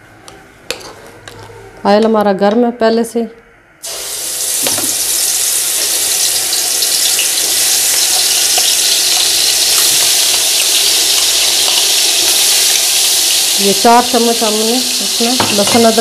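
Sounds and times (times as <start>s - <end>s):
paste sizzling in hot oil: 3.8s - 16.0s.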